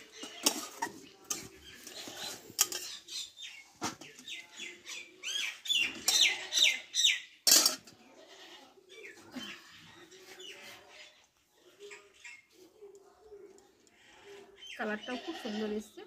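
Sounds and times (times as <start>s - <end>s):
metal spatulas scraping pans: 0.0s - 4.3s, 5.8s - 6.8s, 7.5s - 8.0s
small birds chirping: 0.0s - 7.5s, 8.7s - 16.0s.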